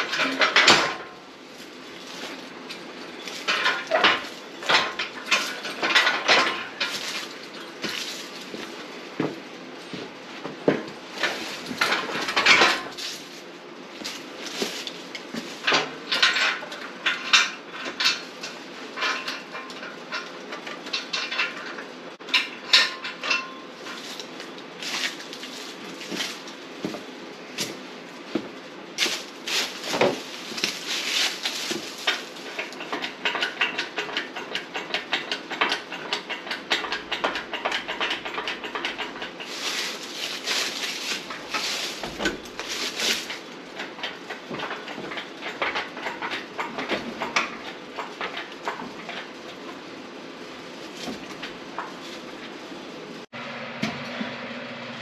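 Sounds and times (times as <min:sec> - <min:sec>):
steel tubing clanking: 0:00.0 - 0:01.2, 0:02.0 - 0:08.6, 0:10.7 - 0:13.4, 0:14.0 - 0:27.0, 0:28.4 - 0:52.5
rapid metallic rattling: 0:29.0 - 0:52.0.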